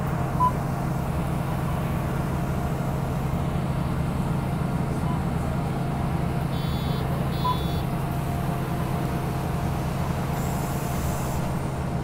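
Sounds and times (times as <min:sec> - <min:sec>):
bus engine and road rumble: 0:00.0 - 0:12.0
short high beep: 0:06.6 - 0:07.9.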